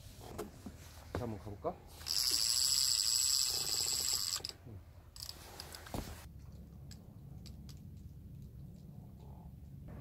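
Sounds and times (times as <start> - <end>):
fishing reel whirring and clicking: 2.0 - 4.5.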